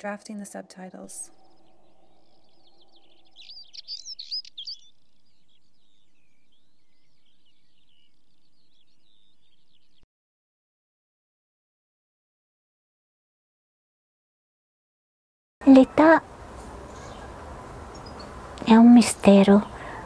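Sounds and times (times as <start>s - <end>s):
songbirds chirping and singing: 1.0s - 10.0s, 15.7s - 20.0s.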